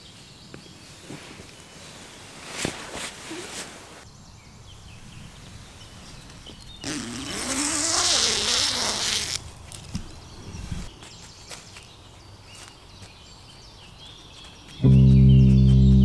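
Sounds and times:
tent zipper pulled open: 0:02.6 - 0:04.0, 0:06.8 - 0:09.4.

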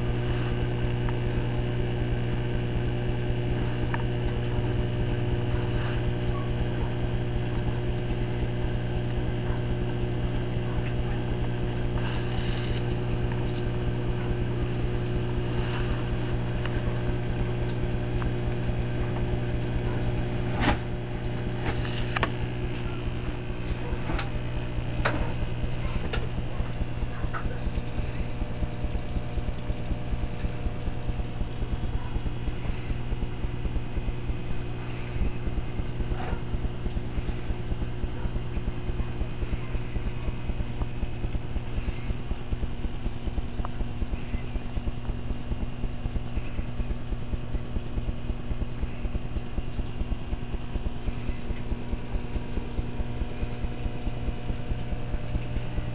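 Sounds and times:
hiss of moving water: 0:00.0 - 0:02.5, 0:03.8 - 0:06.4, 0:10.3 - 0:23.4, 0:32.2 - 0:55.9
low electric hum: 0:00.0 - 0:55.9.

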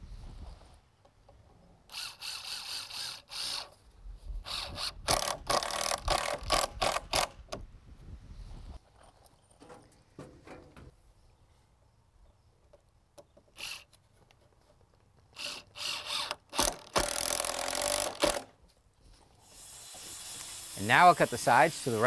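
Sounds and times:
cordless drill driving screws: 0:01.9 - 0:03.8, 0:04.4 - 0:07.3, 0:13.6 - 0:13.9, 0:15.4 - 0:18.5.

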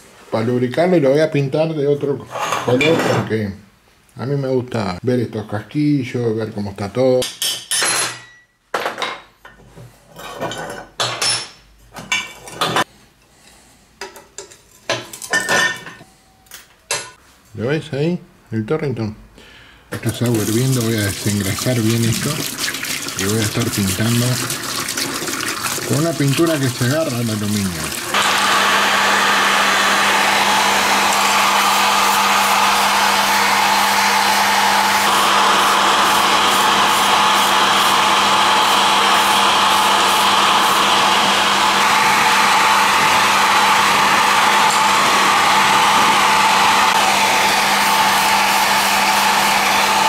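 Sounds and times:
heat gun blowing air: 0:25.9 - 0:50.0.

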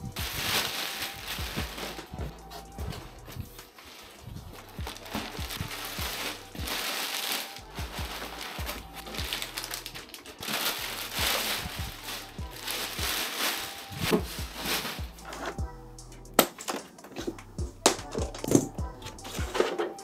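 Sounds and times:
plastic bag crinkling: 0:00.0 - 0:02.3, 0:03.5 - 0:15.6
background music with beat: 0:00.0 - 0:20.0.

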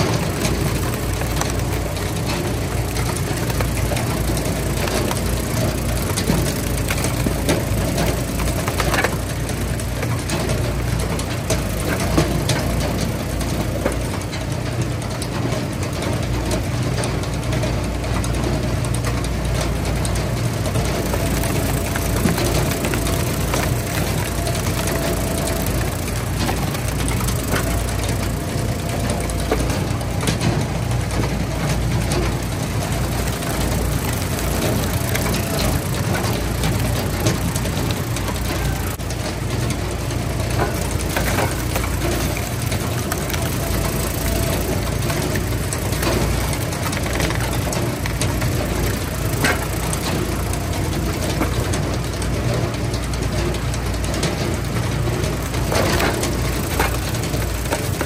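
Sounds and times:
wood splitter engines running: 0:00.0 - 0:58.0
wood cracking as it splits: 0:20.8 - 0:30.4.

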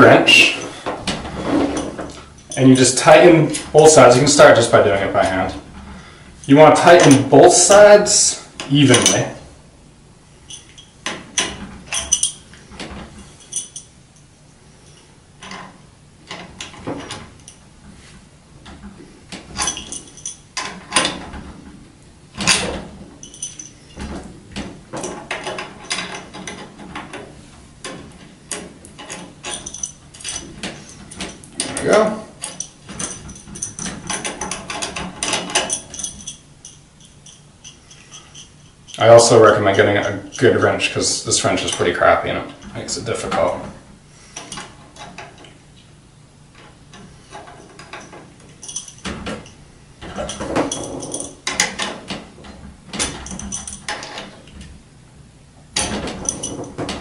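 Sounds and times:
metal wrench clinking and scraping: 0:08.9 - 0:09.3, 0:10.5 - 0:15.7, 0:19.6 - 0:21.2, 0:22.4 - 0:24.2, 0:25.0 - 0:27.1, 0:28.5 - 0:39.1, 0:46.9 - 0:52.0, 0:53.0 - 0:54.4, 0:55.8 - 0:57.0.

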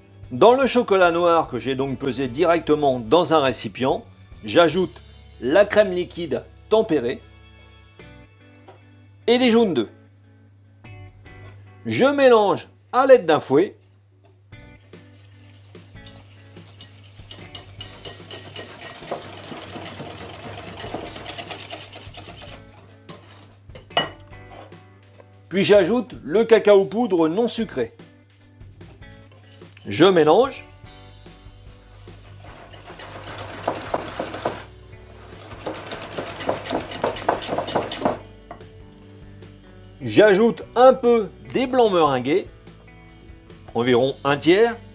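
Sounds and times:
whisk scraping glass bowl: 0:14.8 - 0:23.6, 0:31.7 - 0:38.2.

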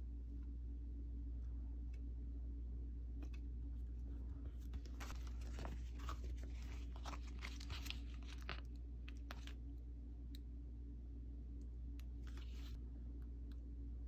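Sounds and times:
sticker sheet crinkling: 0:04.5 - 0:09.6, 0:12.2 - 0:12.8.

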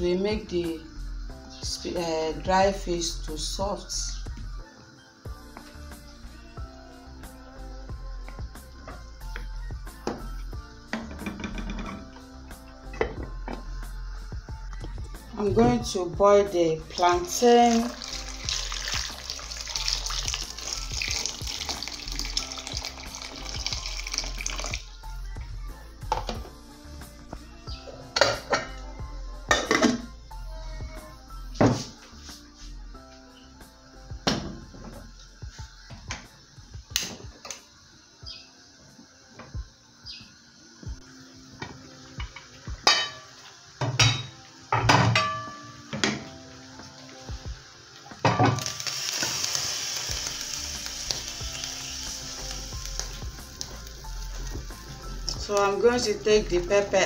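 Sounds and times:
metal pots and lids clanking: 0:10.9 - 0:12.1, 0:28.1 - 0:28.7, 0:29.5 - 0:30.1, 0:42.2 - 0:46.3, 0:48.2 - 0:48.8
water pouring into pot: 0:16.9 - 0:25.0, 0:48.3 - 0:56.8.

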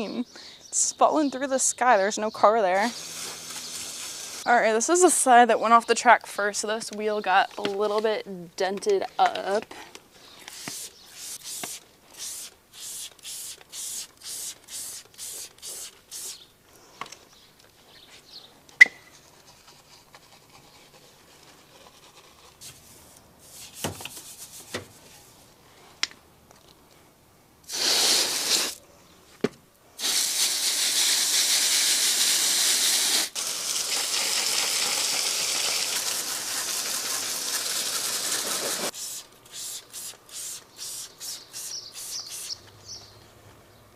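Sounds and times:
spray bottle squirting: 0:02.8 - 0:04.4, 0:10.4 - 0:16.4, 0:27.7 - 0:28.8, 0:30.0 - 0:42.6
hose spray nozzle hissing: 0:02.8 - 0:04.5, 0:10.4 - 0:16.4, 0:27.7 - 0:28.8, 0:30.0 - 0:42.6.

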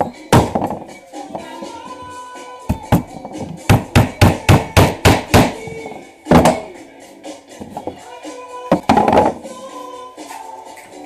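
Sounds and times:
hammer nailing wood: 0:03.7 - 0:05.6.

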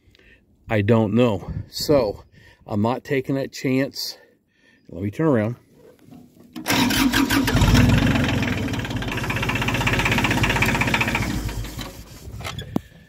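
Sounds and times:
tractor diesel engine revving: 0:06.6 - 0:12.2.

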